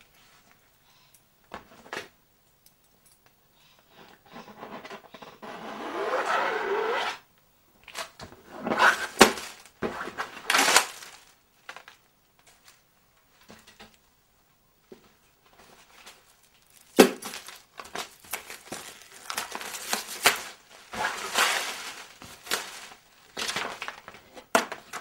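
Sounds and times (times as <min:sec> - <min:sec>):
canvas scraping rub: 0:05.4 - 0:07.2, 0:08.5 - 0:09.3, 0:20.9 - 0:22.7.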